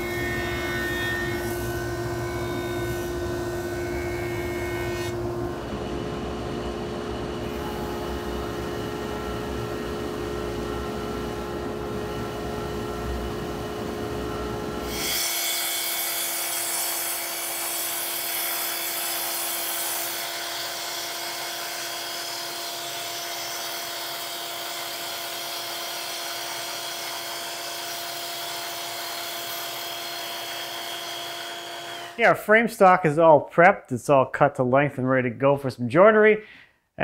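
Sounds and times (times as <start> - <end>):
saw motor whining: 14.8 - 32.2.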